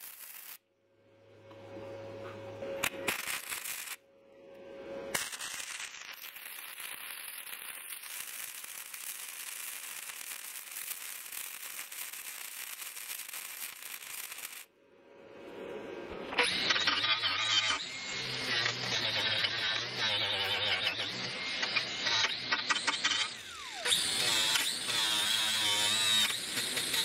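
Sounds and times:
welder arc crackling: 0:00.0 - 0:00.6, 0:02.8 - 0:04.0, 0:05.2 - 0:14.7
angle grinder grinding metal: 0:16.4 - 0:27.0.

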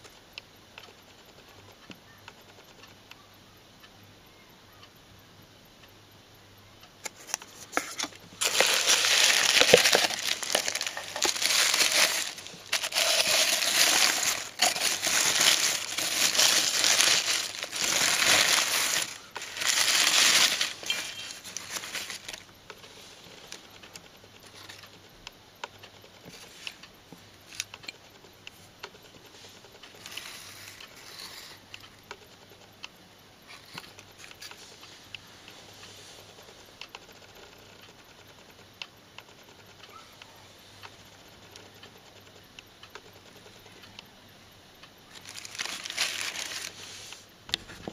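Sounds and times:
tissue paper crinkling: 0:07.2 - 0:22.4, 0:45.2 - 0:46.9.

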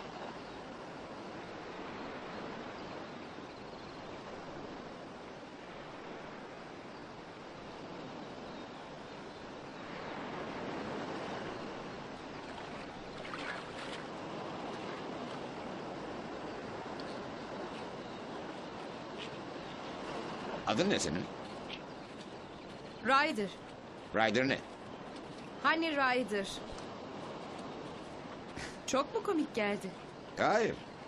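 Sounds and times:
sea surf breaking on beach: 0:04.0 - 0:21.9.

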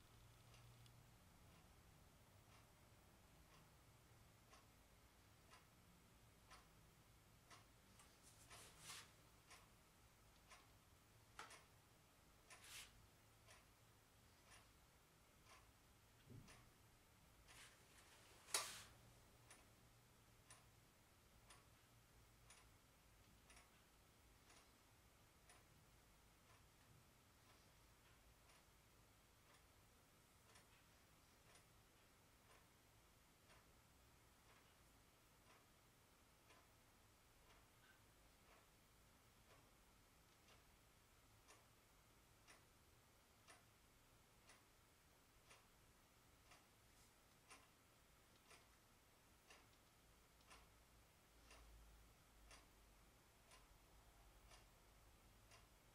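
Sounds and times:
faint even ticking: 0:00.0 - 0:55.9.

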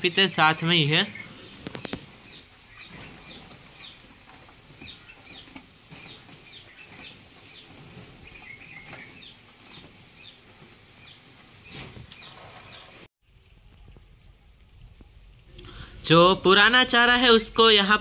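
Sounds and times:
animals munching rustling straw: 0:01.4 - 0:12.7.

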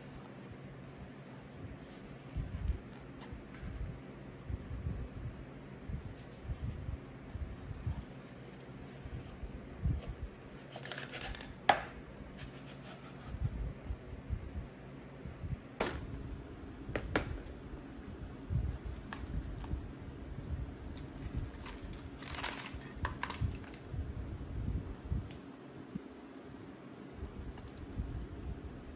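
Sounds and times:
scrapes and rubs of handling: 0:00.0 - 0:03.9, 0:05.8 - 0:14.0
steady low hum: 0:00.0 - 0:28.9.

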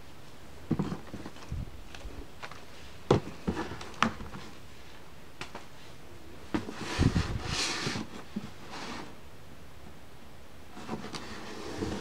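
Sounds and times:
books sliding and rubbing: 0:06.5 - 0:09.2, 0:10.8 - 0:12.0.

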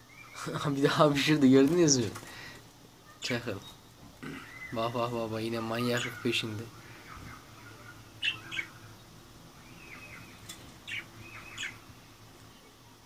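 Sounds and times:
budgerigars chirping: 0:03.1 - 0:11.9.

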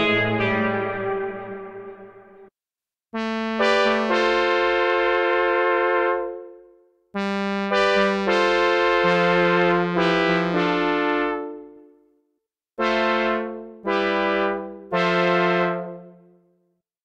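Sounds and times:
synth brass chords: 0:00.0 - 0:02.5, 0:03.2 - 0:06.6, 0:07.7 - 0:11.8, 0:12.8 - 0:16.3.

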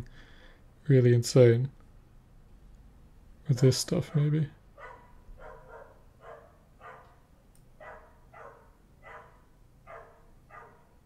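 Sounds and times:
faint dog barking: 0:04.0 - 0:07.2, 0:07.8 - 0:11.0.

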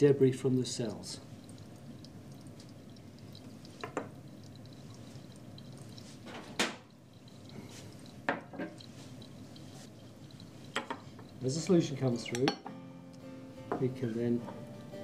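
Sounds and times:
faint steady hiss: 0:00.0 - 0:15.0
glassware clicking on wooden bench: 0:10.8 - 0:11.0, 0:12.2 - 0:12.8.

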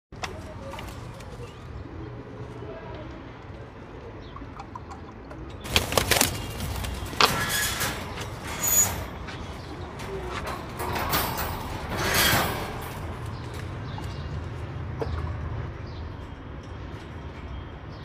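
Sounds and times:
wire cage clanks and rattles: 0:05.4 - 0:17.6.

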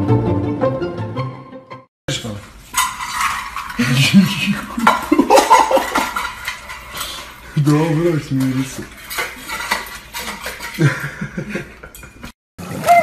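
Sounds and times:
metal bowl clanking on tile floor: 0:02.2 - 0:12.3.

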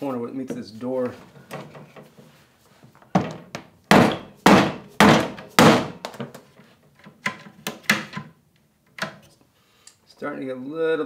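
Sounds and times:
mallet thudding on wooden panel: 0:03.2 - 0:06.2.

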